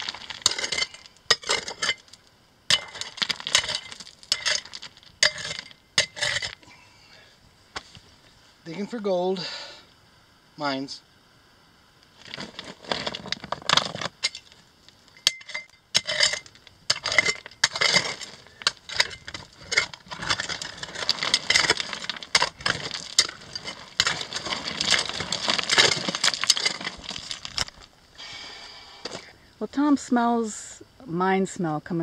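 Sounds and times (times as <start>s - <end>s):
pick striking rocks: 0.0s - 6.6s, 12.2s - 14.6s, 15.2s - 27.9s
stones clinking and rattling: 0.0s - 6.6s, 12.2s - 28.0s.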